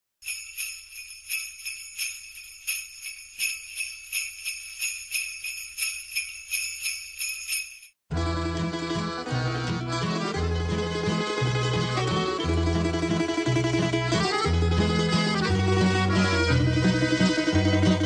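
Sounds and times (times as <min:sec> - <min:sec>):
jingle bells shaking: 0:00.2 - 0:08.0.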